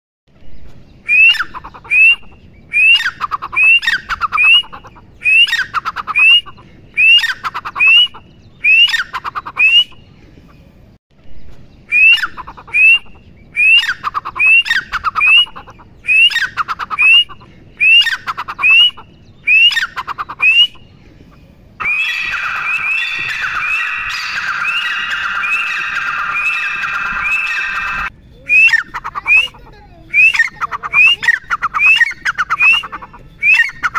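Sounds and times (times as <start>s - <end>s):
francolin calling: 21.8s - 33.9s.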